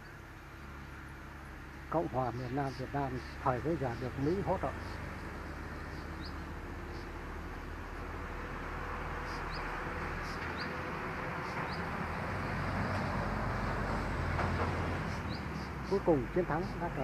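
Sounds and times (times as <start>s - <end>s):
bird rising chirp: 2.4s - 7.3s, 9.2s - 12.6s.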